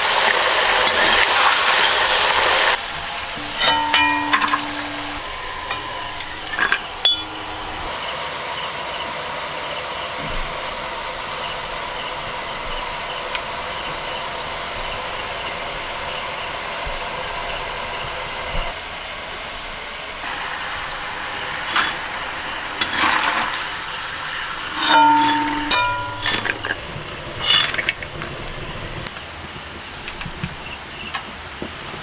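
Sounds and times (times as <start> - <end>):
oil sizzling in a wok: 0.0 - 8.5, 20.2 - 29.0
utensil knocks and ring: 3.4 - 7.8.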